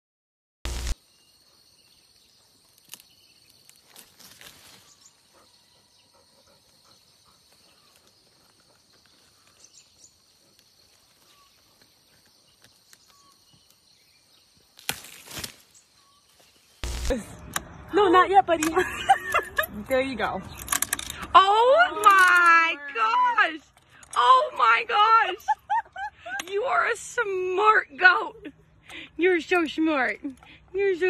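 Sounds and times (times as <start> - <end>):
small rustles and scrapes: 2.8 - 5.2.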